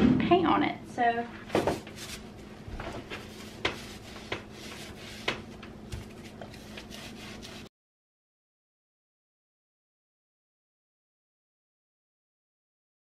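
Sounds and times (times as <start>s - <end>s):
hand tool scraping and tapping: 3.1s - 7.6s.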